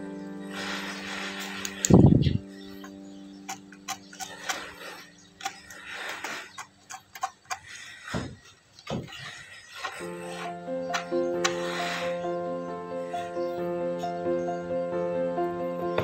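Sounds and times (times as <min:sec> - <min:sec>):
background music: 0:00.0 - 0:07.8, 0:09.7 - 0:16.0
marker pen scratching: 0:03.5 - 0:08.3, 0:08.9 - 0:12.4.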